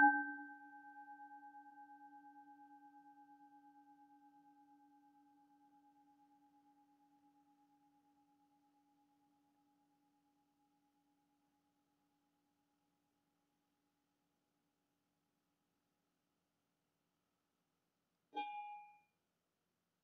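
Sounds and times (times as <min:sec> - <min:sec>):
singing bowl ringing: 0:00.0 - 0:00.5.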